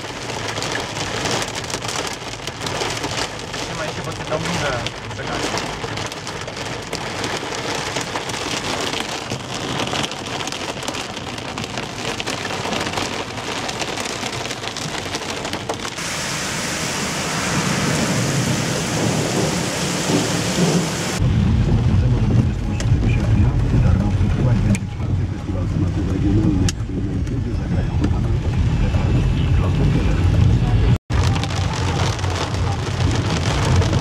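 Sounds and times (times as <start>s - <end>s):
heavy rain on car roof: 0.0s - 34.0s
low rumble: 16.0s - 34.0s.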